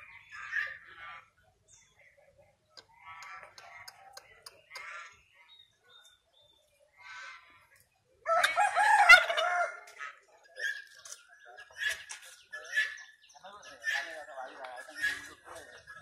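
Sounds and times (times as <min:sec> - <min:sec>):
turkey gobbling: 0:08.3 - 0:13.1, 0:13.7 - 0:14.2, 0:14.8 - 0:15.7.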